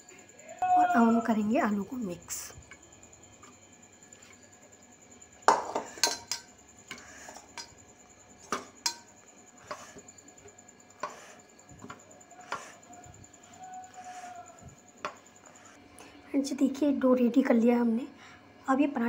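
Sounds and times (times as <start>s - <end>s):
steel bowls clinking: 5.4s - 10.0s.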